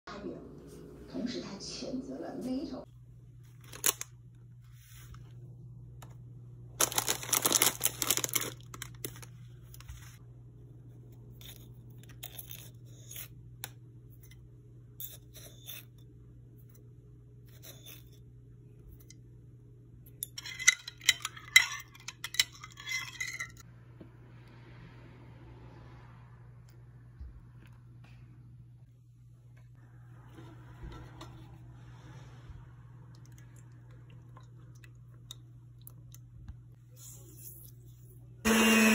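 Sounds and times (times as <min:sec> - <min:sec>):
food packaging rustling and tearing: 0:03.5 - 0:04.2, 0:06.8 - 0:10.2.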